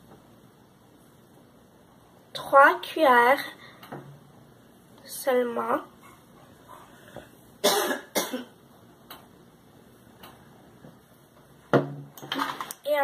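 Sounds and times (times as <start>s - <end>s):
person coughing: 7.6s - 8.6s.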